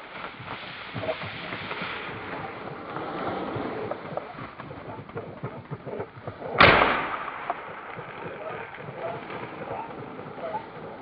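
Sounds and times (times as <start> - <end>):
footsteps through tall grass: 0.0 - 4.8
shotgun shot: 6.6 - 9.5.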